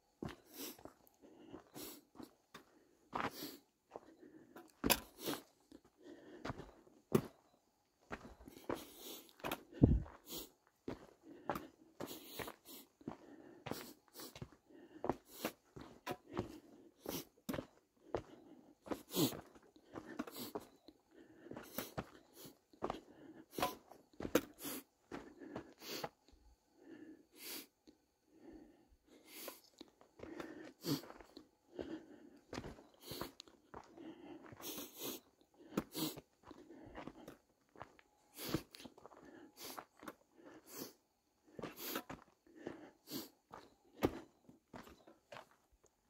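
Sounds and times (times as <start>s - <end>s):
footsteps crunching on dirt and rock: 8.1s - 20.8s, 43.5s - 45.6s.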